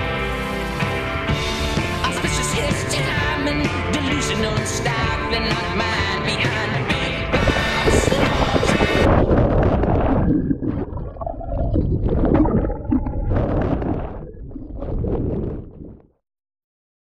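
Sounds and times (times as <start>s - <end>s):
muffled underwater water churning: 7.2s - 16.2s.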